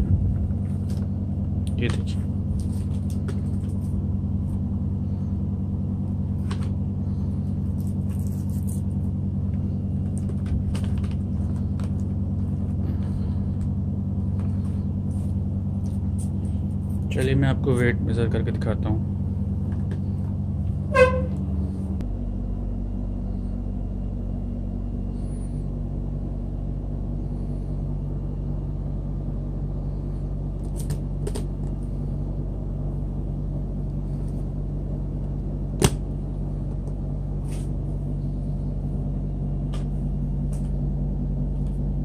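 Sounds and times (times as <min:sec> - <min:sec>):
steady low hum: 0:00.0 - 0:42.0.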